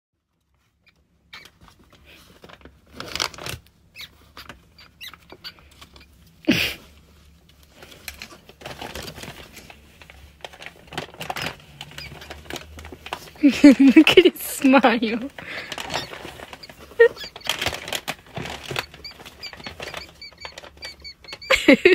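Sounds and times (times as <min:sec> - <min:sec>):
rustling and scratching in cage: 0:00.2 - 0:21.9
rat squeaking: 0:00.7 - 0:01.7, 0:03.9 - 0:06.2, 0:11.2 - 0:12.9, 0:15.6 - 0:21.9.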